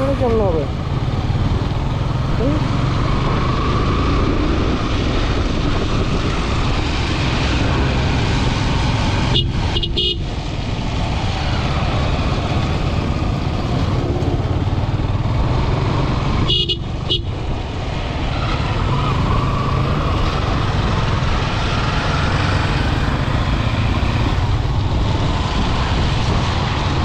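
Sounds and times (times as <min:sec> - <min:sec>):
motorcycle riding at low speed: 0:00.0 - 0:27.0
wind noise: 0:00.0 - 0:27.0
vehicle horn toots: 0:09.3 - 0:10.2, 0:16.5 - 0:17.3.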